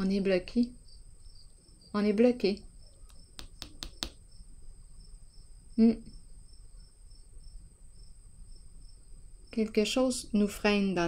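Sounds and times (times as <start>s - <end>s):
insect pulsing chirp: 0.0s - 10.0s
insects trilling: 0.0s - 11.0s
sharp clicks: 2.9s - 4.2s.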